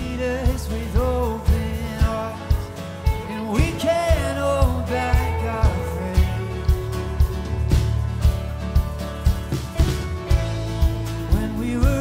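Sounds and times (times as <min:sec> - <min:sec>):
man singing: 0:00.0 - 0:07.7, 0:11.2 - 0:12.0
acoustic guitar: 0:00.0 - 0:12.0
electric bass: 0:00.0 - 0:12.0
electric guitar: 0:00.0 - 0:12.0
drum beat: 0:00.5 - 0:12.0.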